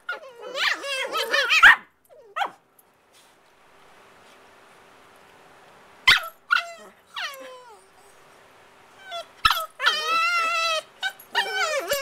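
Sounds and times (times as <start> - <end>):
puppies yelping: 0.0 - 2.6, 6.1 - 7.8, 9.0 - 12.0
puppy whining: 0.0 - 2.6, 6.1 - 8.2, 8.9 - 12.0.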